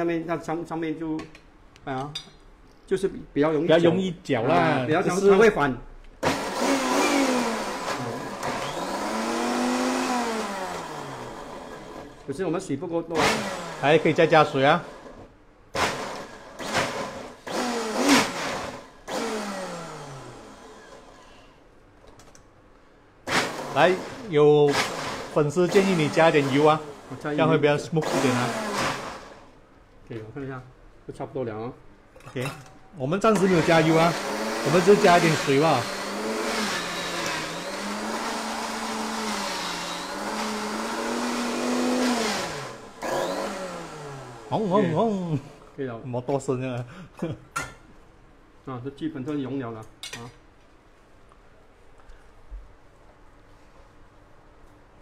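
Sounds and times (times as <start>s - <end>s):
blender motor winding down: 6.2s - 12.2s, 13.2s - 15.2s, 15.8s - 21.4s, 23.3s - 29.5s, 33.3s - 45.7s
blender grinding in bursts: 6.2s - 12.3s, 13.1s - 15.2s, 15.8s - 21.5s, 23.2s - 29.6s, 33.3s - 45.8s.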